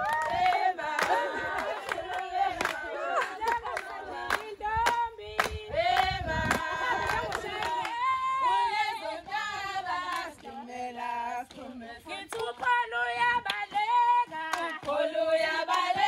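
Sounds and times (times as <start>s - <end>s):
hand claps: 0.0s - 8.0s, 12.2s - 16.0s
women singing in chorus: 0.0s - 16.0s.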